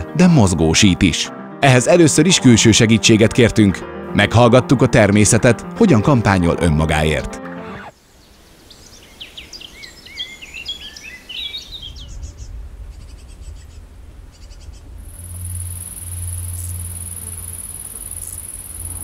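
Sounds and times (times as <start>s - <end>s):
birds singing: 7.9s - 19.0s
insects chirping: 8.0s - 11.9s, 15.0s - 19.0s
high-pitched insect buzz: 15.1s - 19.0s.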